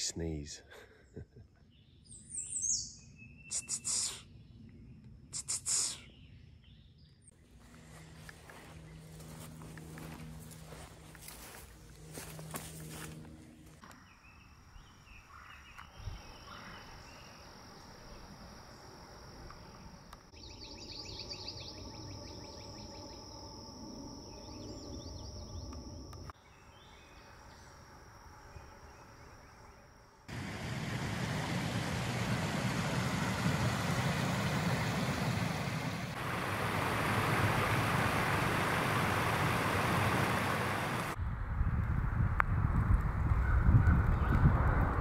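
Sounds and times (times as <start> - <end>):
river water rushing over concrete: 30.3 - 41.2.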